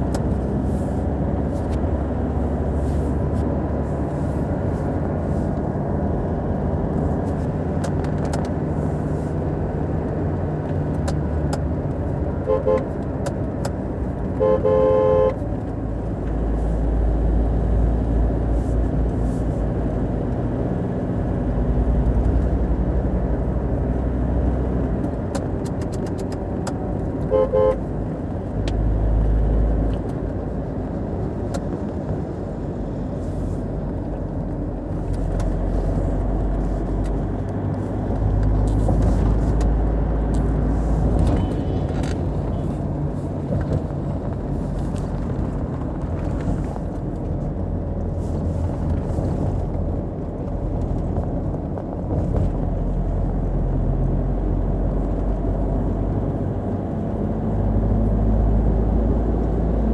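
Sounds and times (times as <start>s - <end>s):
car road and engine rumble: 0.0s - 59.9s
car horn toots: 12.4s - 13.0s, 14.4s - 15.4s, 27.3s - 27.9s.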